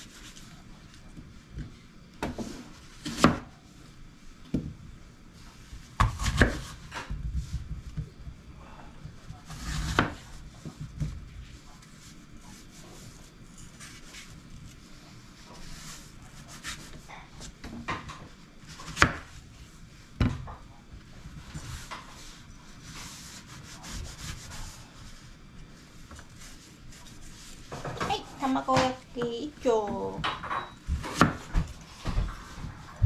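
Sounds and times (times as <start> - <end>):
knife slicing an apple: 2.2 - 3.5, 5.9 - 7.1, 9.4 - 10.7, 15.6 - 17.6, 18.6 - 19.3, 31.0 - 31.7.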